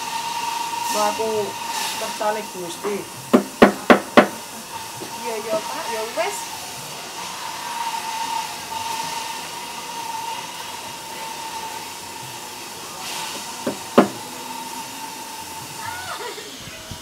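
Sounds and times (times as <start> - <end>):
steady background hiss: 0.0 - 17.0
sharp knocks: 3.3 - 4.4, 13.6 - 14.2.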